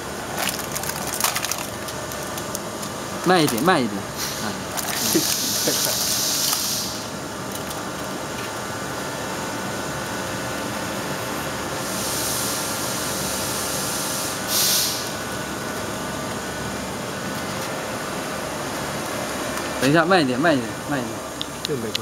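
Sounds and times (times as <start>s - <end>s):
steady low hum: 0.0s - 22.0s
air hissing from tyre valve: 4.1s - 7.2s, 11.8s - 15.2s.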